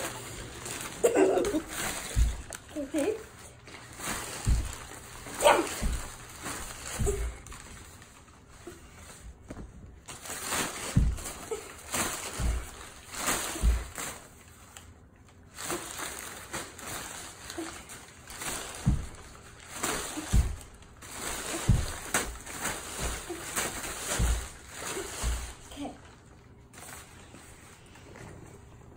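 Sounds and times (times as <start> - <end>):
paper bag rustling and crinkling: 0.0 - 28.4
soft thumps: 1.6 - 2.7, 4.0 - 7.7, 10.8 - 11.5, 18.6 - 25.7.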